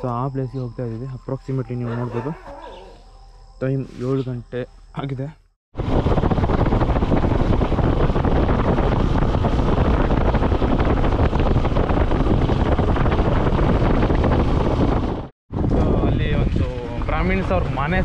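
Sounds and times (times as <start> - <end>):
wind buffeting microphone: 5.7 - 18.0.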